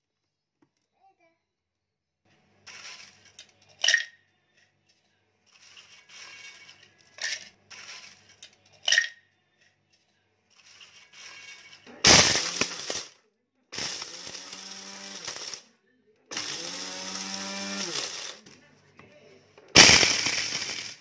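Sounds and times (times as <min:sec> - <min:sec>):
scraping and rattling: 0:05.4 - 0:08.7, 0:10.5 - 0:13.2, 0:16.3 - 0:18.6, 0:19.7 - 0:21.0.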